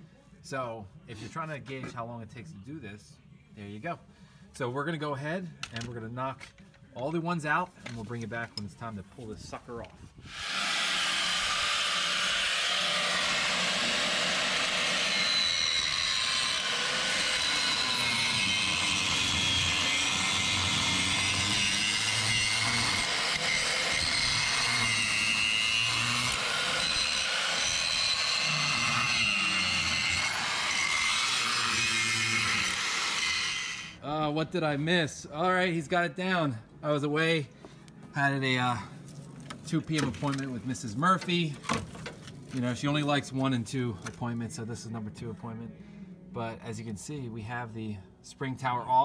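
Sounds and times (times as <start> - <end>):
angle grinder grinding metal: 10.3 - 34.0.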